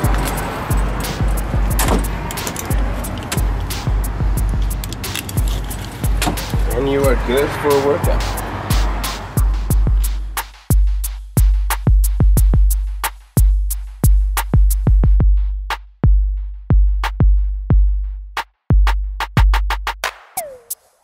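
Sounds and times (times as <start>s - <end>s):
electronic music: 0.0s - 15.6s, 20.0s - 21.0s
deep bass: 0.0s - 19.9s
drum-machine beat: 0.0s - 21.0s.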